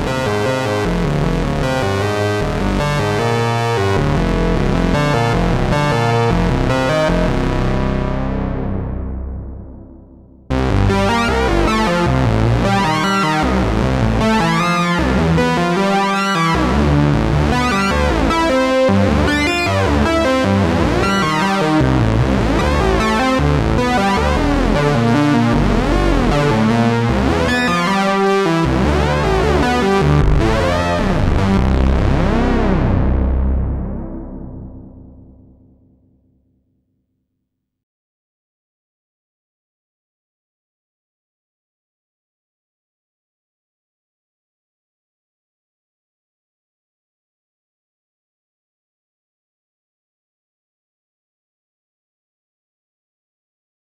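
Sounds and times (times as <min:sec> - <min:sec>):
synthesizer sequenced melody: 0:00.9 - 0:35.6.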